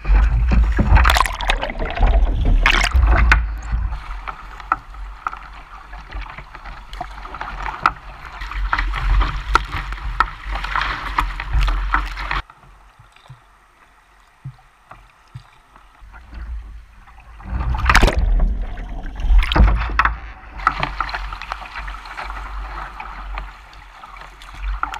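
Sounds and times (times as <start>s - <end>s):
paddle strokes and drips: 0.0s - 24.9s
water rushing and splashing: 0.0s - 24.9s
loud splashes: 0.6s - 4.2s.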